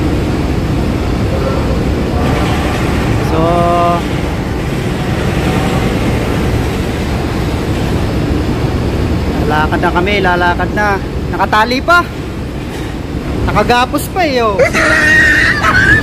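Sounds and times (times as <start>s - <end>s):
low engine rumble: 0.0s - 11.4s
passengers' voices: 0.0s - 11.4s, 12.0s - 16.0s.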